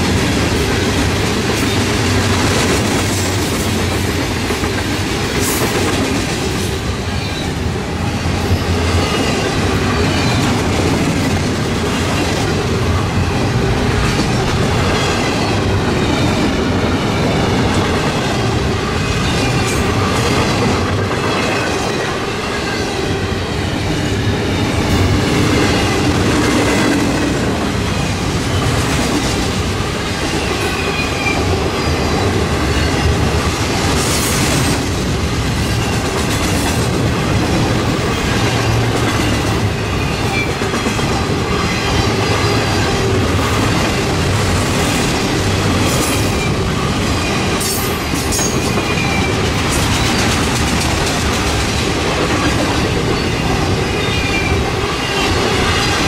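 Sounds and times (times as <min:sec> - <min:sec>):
clickety-clack over rail joints: 0:00.0 - 0:56.0
train wheels rumbling on rails: 0:00.0 - 0:56.0.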